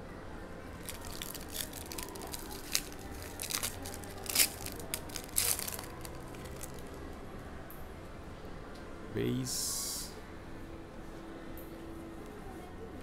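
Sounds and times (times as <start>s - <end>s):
card pack wrapper tearing and crinkling: 0.8s - 7.0s.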